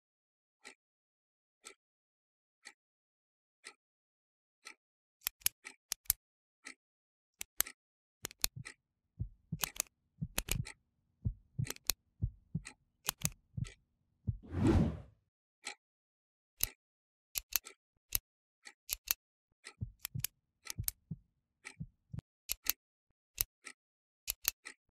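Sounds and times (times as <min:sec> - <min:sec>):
sharp ticks: 0:07.5 - 0:08.8, 0:09.5 - 0:10.8, 0:11.6 - 0:12.0, 0:12.6 - 0:13.8, 0:18.6 - 0:21.8.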